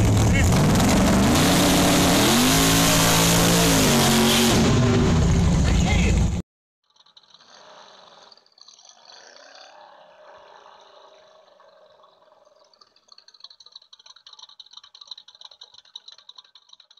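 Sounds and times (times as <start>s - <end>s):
rapid light clicking: 12.6s - 16.9s.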